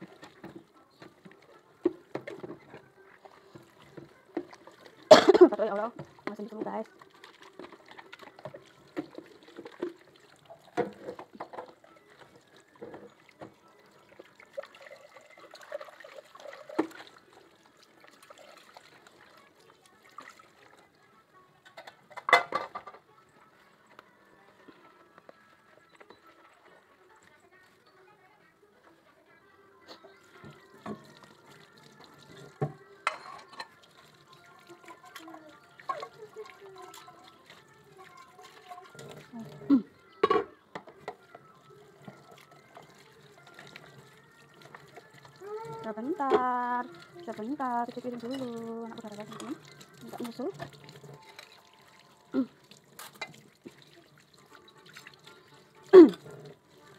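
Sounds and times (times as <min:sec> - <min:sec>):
dishes and pots clattering: 0:00.0 - 0:06.4, 0:07.5 - 0:13.6, 0:21.6 - 0:23.1, 0:32.2 - 0:33.8, 0:39.0 - 0:41.4, 0:53.0 - 0:53.8, 0:55.2 - 0:56.5
water trickling and pouring: 0:00.0 - 0:28.0, 0:30.1 - 0:56.9
dishes clanking together: 0:21.6 - 0:23.0, 0:32.6 - 0:33.8, 0:40.2 - 0:41.2.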